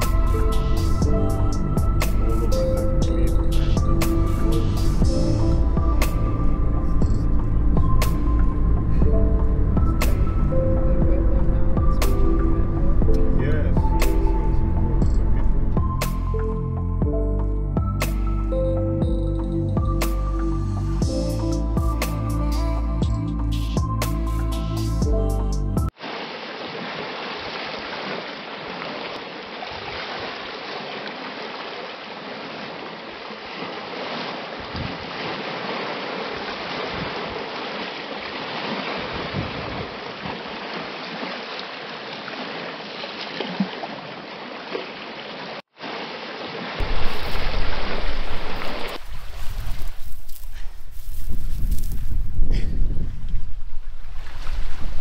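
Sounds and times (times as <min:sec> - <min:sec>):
water rushing: 0:00.0 - 0:16.3, 0:25.9 - 0:50.4, 0:53.6 - 0:55.0
wind buffeting microphone: 0:46.8 - 0:55.0.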